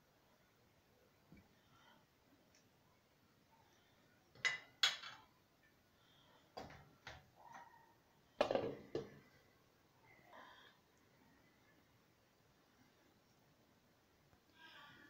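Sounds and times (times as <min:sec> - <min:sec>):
kitchenware clinking: 0:04.4 - 0:05.3.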